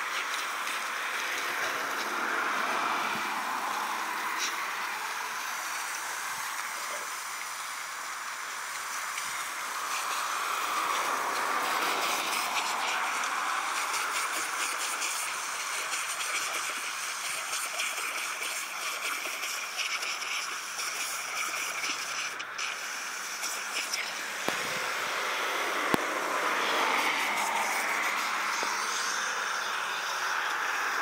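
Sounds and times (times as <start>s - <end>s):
water from hose on gravel: 0.0s - 31.0s
dogs lapping water: 8.6s - 25.0s.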